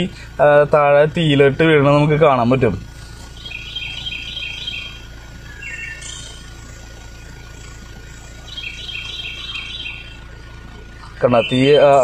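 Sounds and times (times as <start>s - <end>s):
songbird singing: 0.0s - 12.0s
steady low hum: 0.0s - 12.0s.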